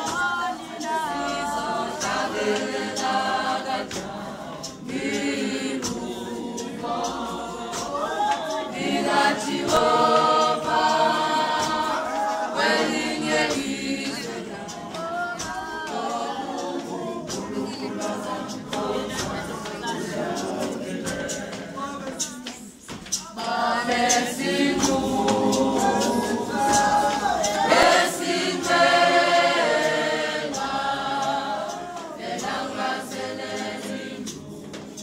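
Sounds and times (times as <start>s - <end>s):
congregation singing a hymn: 0.0s - 35.0s.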